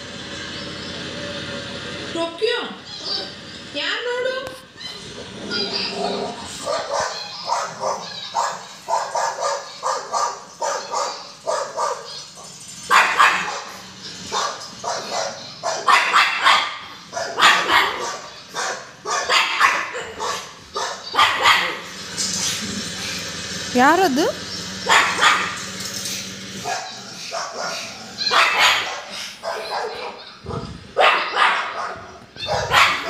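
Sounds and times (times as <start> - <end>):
dog barking: 5.6 - 22.0, 24.8 - 25.6, 26.6 - 33.0.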